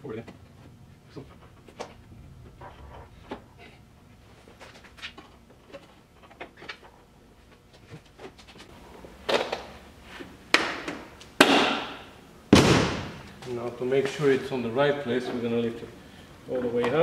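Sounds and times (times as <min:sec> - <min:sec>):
loud knocks on car door: 0:12.5 - 0:13.2.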